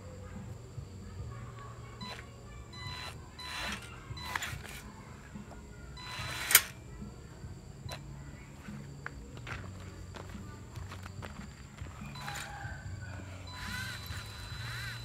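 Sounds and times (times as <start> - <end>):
mechanical clicks: 2.0 - 4.9, 6.0 - 6.8, 13.5 - 15.0.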